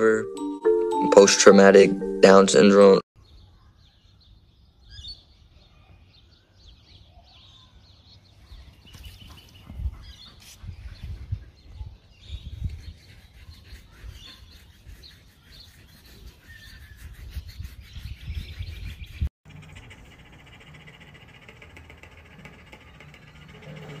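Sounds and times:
small birds chirping: 3.2s - 21.0s.

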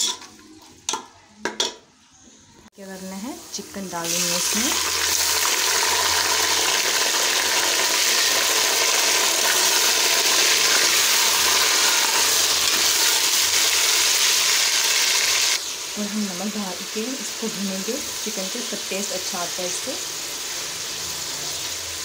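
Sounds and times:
spoon stirring in metal pot: 0.0s - 1.8s
chicken sizzling in hot fat: 2.8s - 22.0s.

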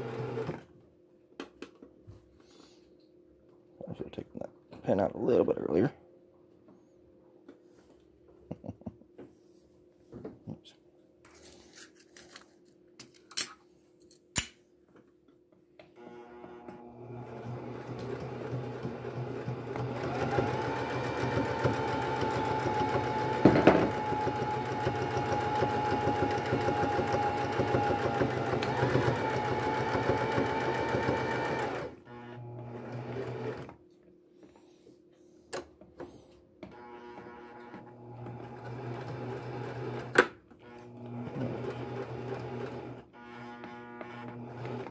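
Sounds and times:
sewing machine stitching: 0.0s - 0.6s, 16.0s - 33.8s, 36.8s - 44.9s.

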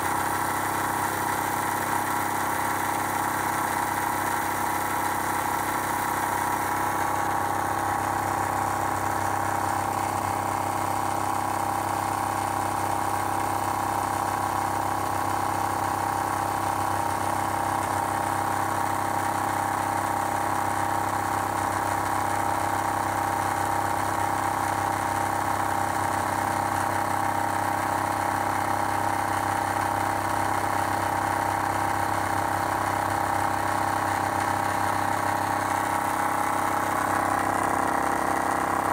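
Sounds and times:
air compressor humming: 0.0s - 38.9s.

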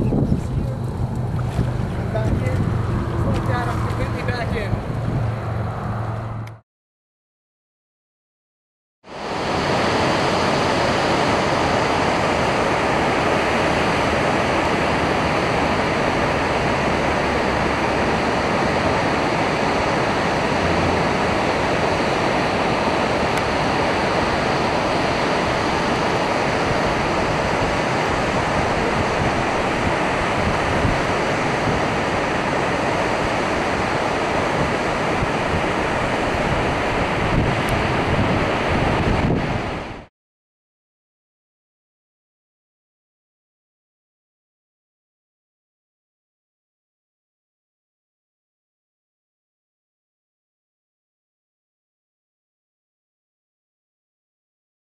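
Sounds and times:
water rushing over a dam: 9.1s - 40.1s.

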